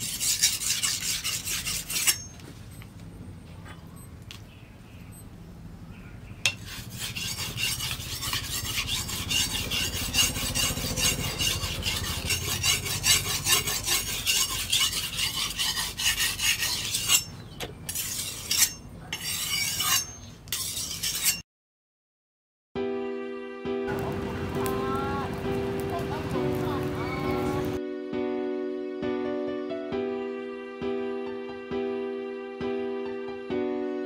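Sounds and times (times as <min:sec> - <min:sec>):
blade grating on whetstone: 0:00.0 - 0:02.4, 0:06.5 - 0:21.4.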